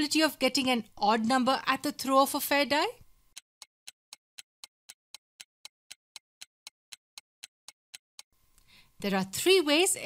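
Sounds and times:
clock ticking: 0:03.3 - 0:08.4.

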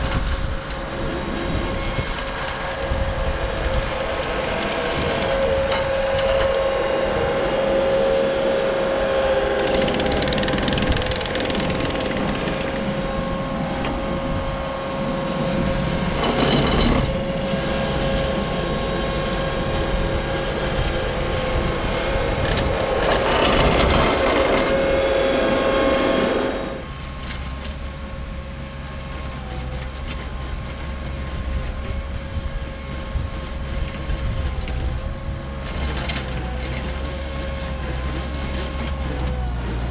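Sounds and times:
diesel engine whining under load: 0:00.0 - 0:39.9
rake churning dry soil: 0:08.7 - 0:39.9.

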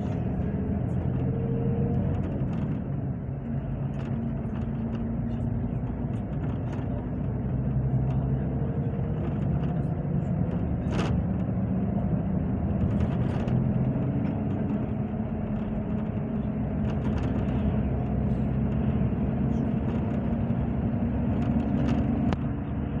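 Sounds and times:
engine and road rumble: 0:00.0 - 0:23.0.

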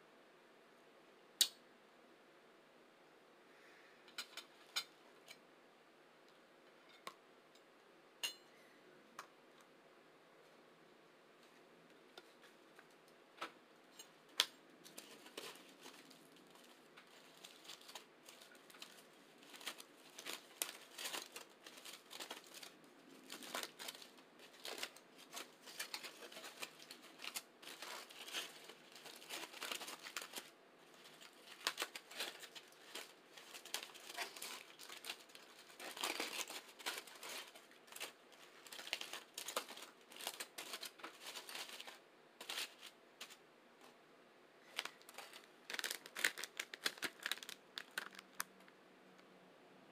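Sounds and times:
aluminium foil crinkling: 0:13.9 - 0:43.4, 0:44.6 - 0:48.7.

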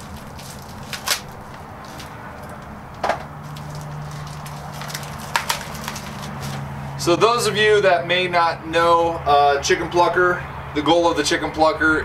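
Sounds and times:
plastic packaging crinkling: 0:00.0 - 0:02.7, 0:03.4 - 0:06.7.

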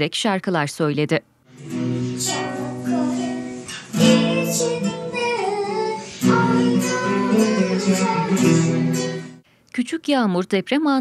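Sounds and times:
strummed acoustic guitar: 0:01.5 - 0:09.4
girl singing: 0:02.1 - 0:09.4.

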